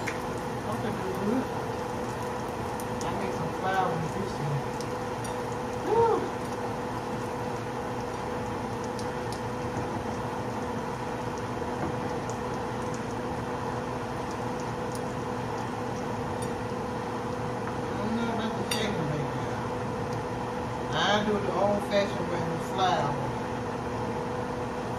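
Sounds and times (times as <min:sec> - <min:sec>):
oil sizzling in a skillet: 0:00.0 - 0:18.0
steady hum: 0:00.0 - 0:24.9.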